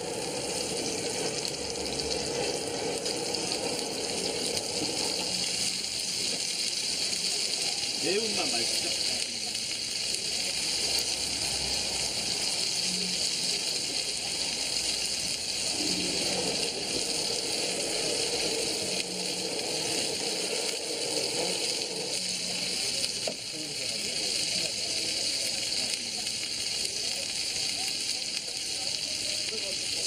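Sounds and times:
meat sizzling on a griddle: 0.0s - 30.0s.

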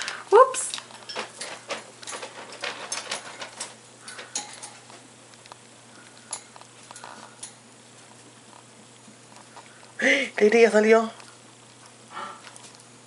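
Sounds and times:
parakeet clicking on wire cage: 0.7s - 4.8s.

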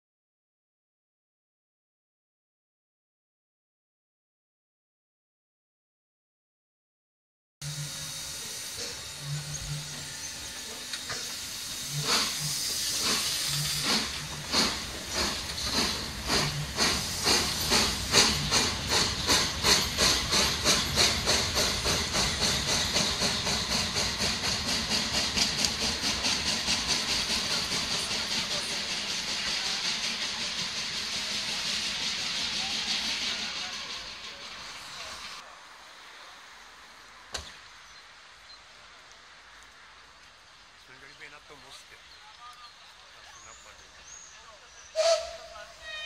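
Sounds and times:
steam locomotive exhaust chuffs: 7.6s - 35.4s, 45.0s - 46.0s
steam hissing: 7.6s - 35.5s, 43.2s - 46.0s.

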